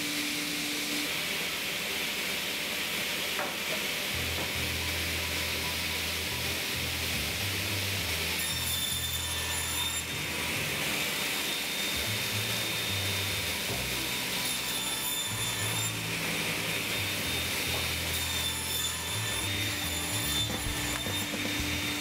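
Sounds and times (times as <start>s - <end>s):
table saw cutting wood: 0.0s - 22.0s
background music with bass line: 20.6s - 22.0s.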